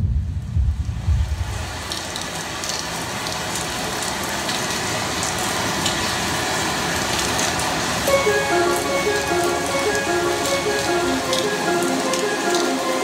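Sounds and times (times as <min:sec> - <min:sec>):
rain-like hiss over sound system: 0:00.0 - 0:13.0.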